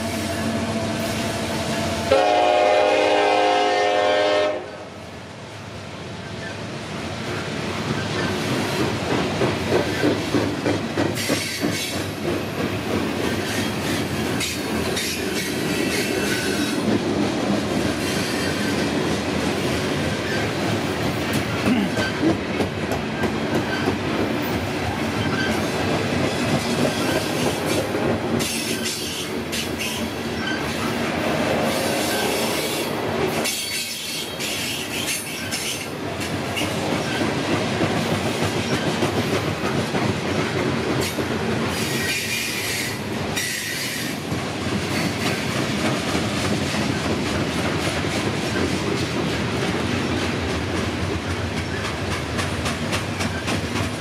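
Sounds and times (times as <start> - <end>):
locomotive horn: 0.0 - 4.9
train cars rumbling: 0.0 - 54.0
wheels clacking over rail joints: 7.8 - 31.2, 33.3 - 54.0.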